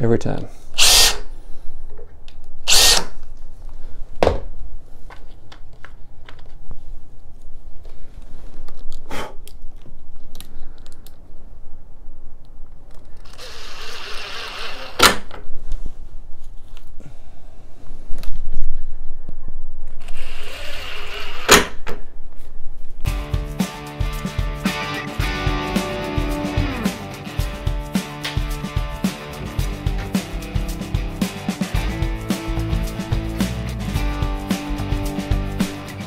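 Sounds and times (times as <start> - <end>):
cordless drill drilling: 0.8 - 1.2, 2.7 - 3.1, 13.2 - 15.0.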